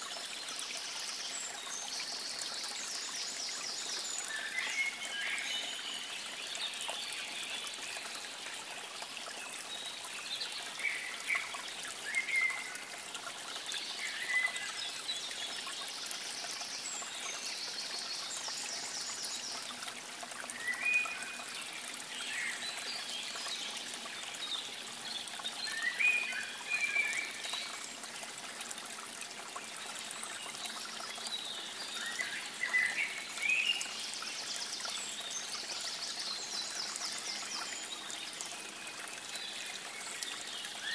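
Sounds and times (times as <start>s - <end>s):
running water trickling: 0.0s - 40.9s.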